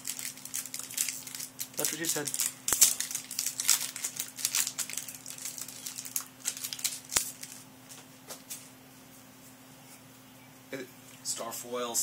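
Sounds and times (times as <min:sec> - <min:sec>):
trading cards rustling and clicking: 0:00.0 - 0:07.6.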